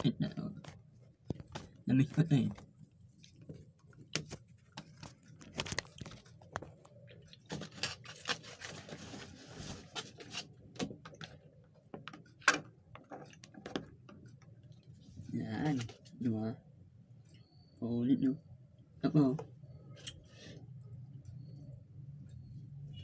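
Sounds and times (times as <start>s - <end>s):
rustling scrape: 8.1s - 10.5s.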